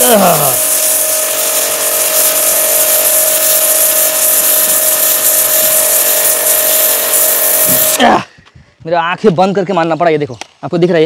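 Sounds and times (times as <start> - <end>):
pressure washer motor whine: 0.0 - 8.2
water jet hissing on brick: 0.0 - 8.2.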